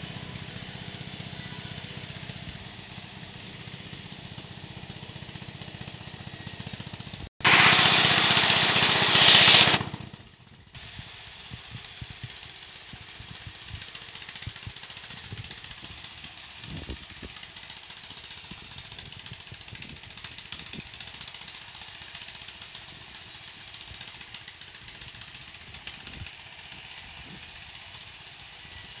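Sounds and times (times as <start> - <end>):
band sawmill running: 0.0 - 29.0
harsh burst of saw noise: 7.4 - 10.2, 21.5 - 29.0.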